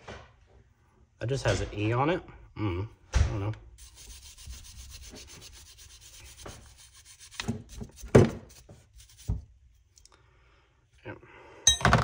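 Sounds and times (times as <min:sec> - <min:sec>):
wire brush scrubbing rusty metal: 0:03.8 - 0:09.4
tools knocking: 0:11.7 - 0:12.0.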